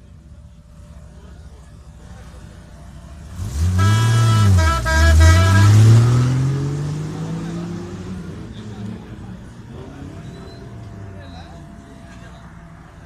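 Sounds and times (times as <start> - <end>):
vehicle engine revving: 3.0 - 13.0
car horn: 3.4 - 6.6.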